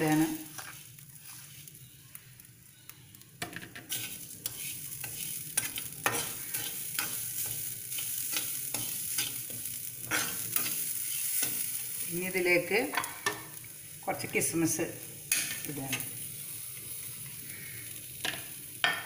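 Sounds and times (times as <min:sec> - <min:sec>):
metal spatula scraping a pan: 0:00.0 - 0:01.7, 0:03.6 - 0:11.9.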